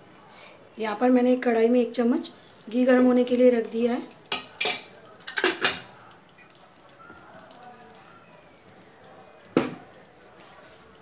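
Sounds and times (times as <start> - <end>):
utensils clattering on iron pan: 4.3 - 5.9.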